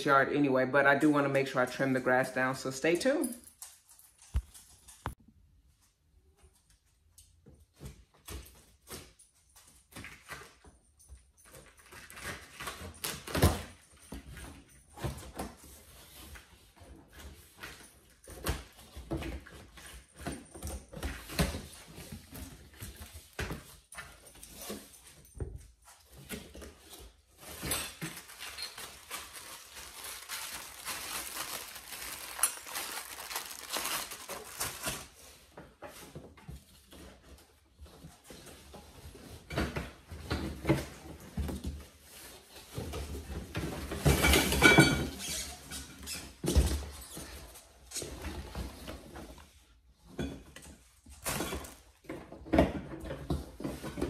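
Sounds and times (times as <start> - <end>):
plastic crinkling: 27.4 - 35.4.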